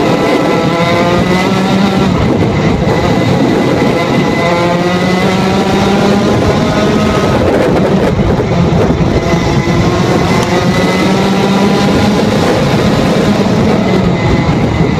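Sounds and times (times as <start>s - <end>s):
kart engine at high revs: 0.0s - 14.9s.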